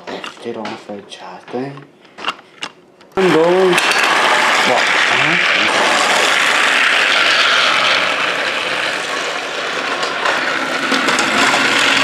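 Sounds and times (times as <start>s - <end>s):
toy train motor whirring: 3.2s - 12.0s
wheels clicking on track joints: 3.8s - 12.0s.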